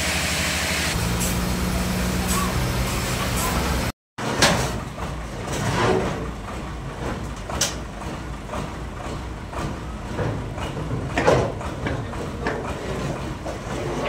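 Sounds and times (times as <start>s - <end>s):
low engine hum: 0.0s - 3.9s
log scraping on steel truck bed: 5.5s - 6.3s.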